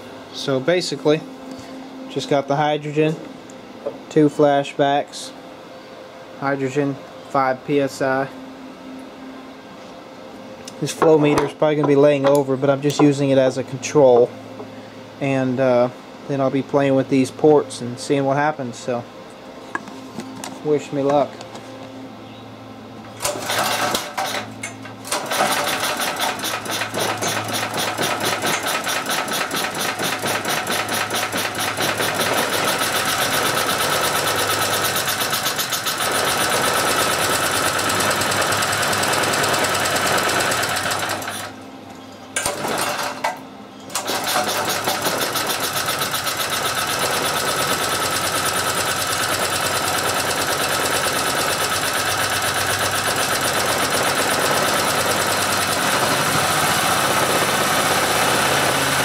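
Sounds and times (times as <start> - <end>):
small generator engine running: 22.8 - 41.6, 42.4 - 59.0.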